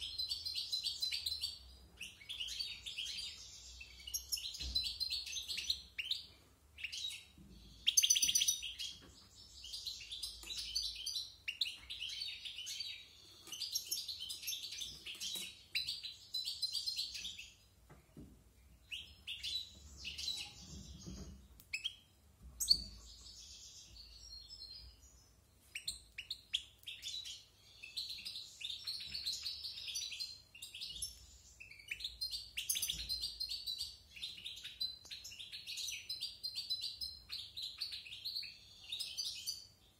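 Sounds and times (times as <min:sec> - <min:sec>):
goldfinch twittering song: 0:18.9 - 0:39.7.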